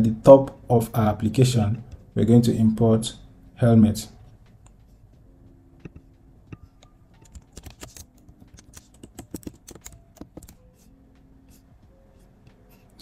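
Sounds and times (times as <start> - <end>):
keyboard typing: 5.8 - 13.0.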